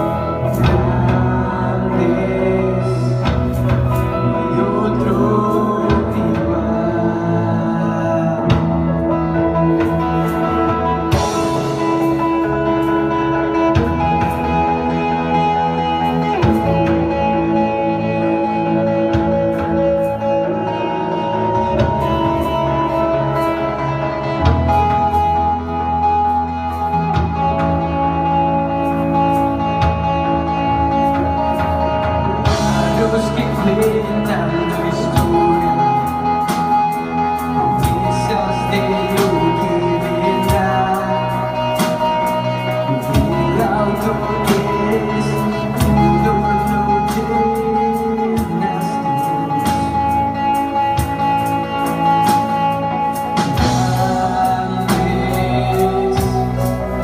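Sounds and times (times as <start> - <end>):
electric guitar: 0.0 - 57.0
keyboard held chords: 0.0 - 57.0
drum kit with cymbals: 31.0 - 57.0.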